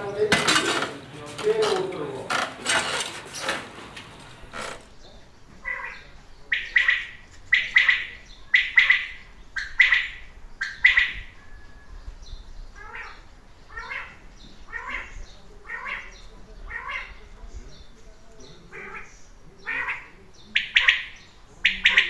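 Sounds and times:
animal calling: 0:05.6 - 0:11.6, 0:12.7 - 0:17.4, 0:18.6 - 0:22.0.

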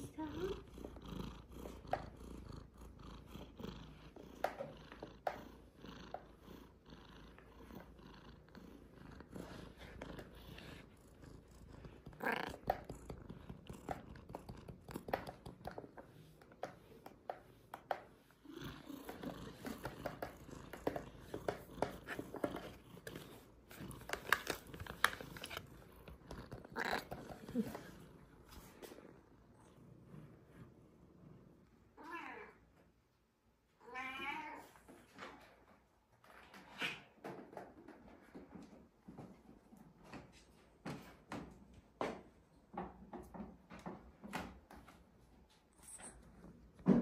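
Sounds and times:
cat purring: 0:00.0 - 0:32.0.

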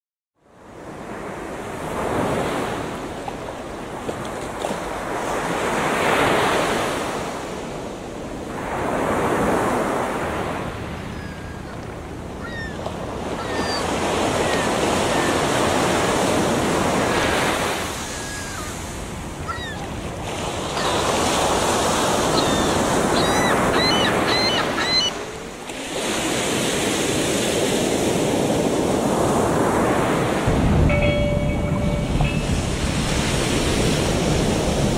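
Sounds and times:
waves on rocky shore: 0:00.7 - 0:34.9
wind on microphone: 0:30.4 - 0:34.9.

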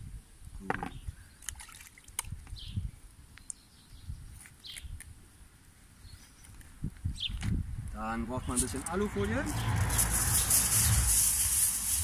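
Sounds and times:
wind gusting on microphone: 0:02.2 - 0:03.0, 0:03.8 - 0:05.2, 0:06.6 - 0:12.0.

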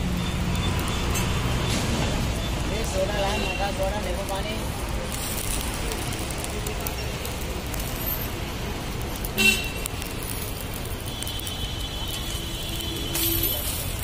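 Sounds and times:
roadside traffic: 0:00.0 - 0:14.0
vehicle horn toot: 0:09.4 - 0:09.8.

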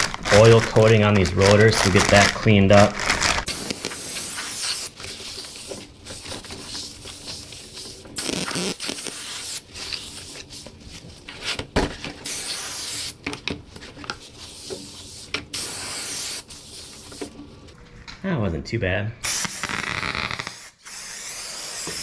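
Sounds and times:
aerosol spray hissing: 0:03.5 - 0:04.9, 0:08.2 - 0:09.6, 0:12.2 - 0:13.1, 0:15.5 - 0:16.9, 0:19.2 - 0:22.0.

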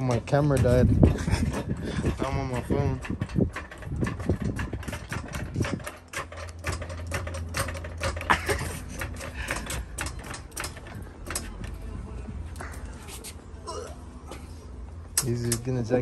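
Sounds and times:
floor jack clicking: 0:00.0 - 0:11.8.

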